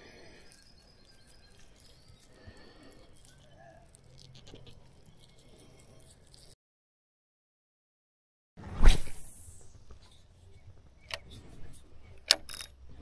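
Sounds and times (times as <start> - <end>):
small rustles and ticks: 0.0 - 6.6.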